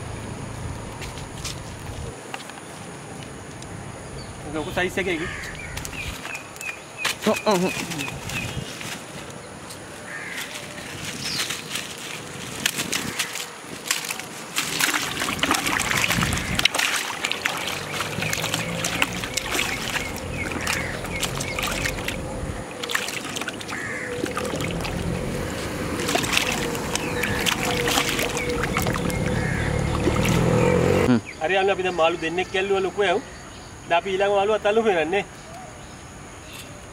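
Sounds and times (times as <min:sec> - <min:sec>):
fish splashing in bucket of water: 0:12.6 - 0:30.6.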